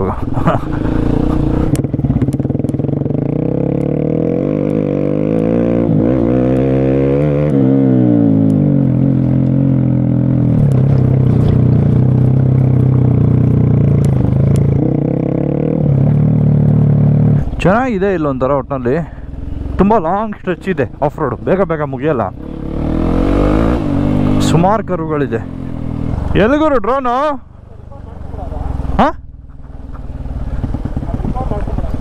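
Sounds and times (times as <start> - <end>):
scooter engines revving: 0.0 - 17.6.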